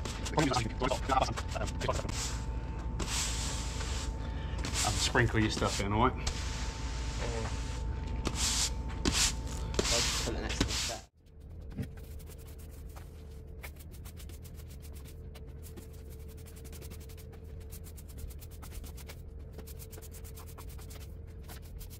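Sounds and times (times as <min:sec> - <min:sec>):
push broom sweeping sand on paving: 0:00.0 - 0:02.4, 0:03.0 - 0:11.1.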